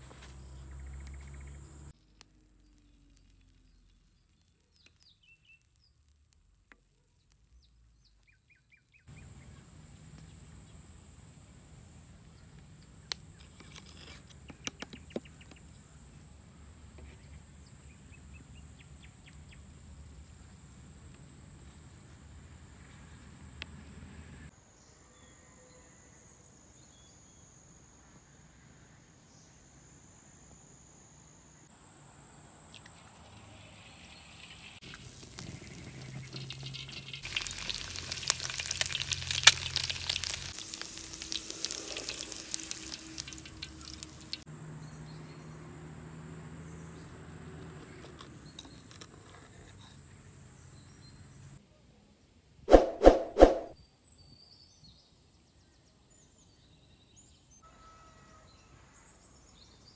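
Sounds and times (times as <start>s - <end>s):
fat sizzling in a wok: 33.5s - 44.4s
high insect drone: 40.6s - 44.4s.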